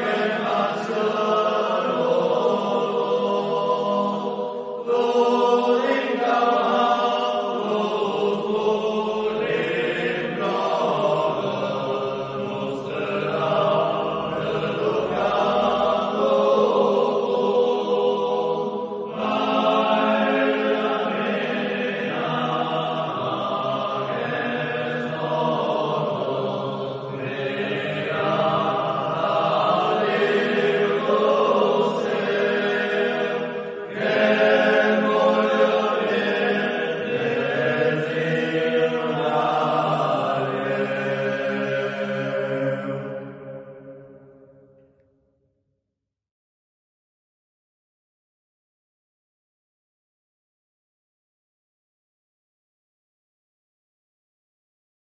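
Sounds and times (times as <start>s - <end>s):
male choir singing a hymn: 0.0s - 43.8s.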